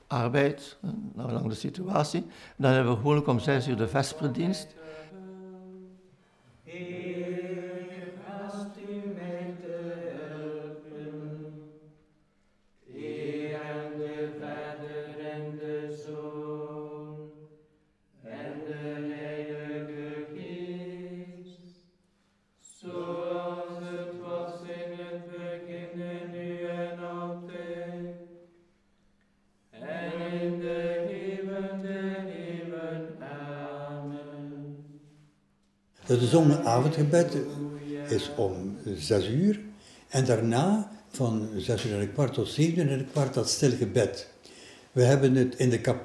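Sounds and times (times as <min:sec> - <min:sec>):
men chanting in unison: 0:36.0 - 0:39.5.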